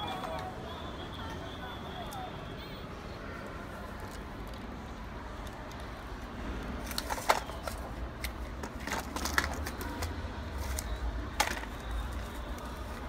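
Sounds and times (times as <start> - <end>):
handling noise clicks and knocks: 6.8 - 12.4.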